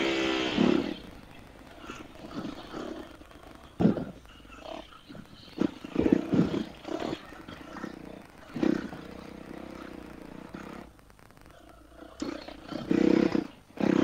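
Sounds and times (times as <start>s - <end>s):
dirt bike engine revving: 0.0s - 1.2s, 7.9s - 10.9s, 12.6s - 14.0s.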